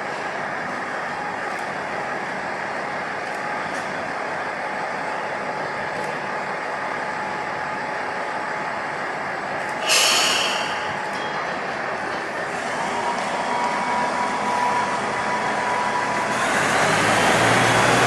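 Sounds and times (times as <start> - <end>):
diesel railcar idling: 0.0 - 18.0
compressed air hiss: 9.8 - 10.9.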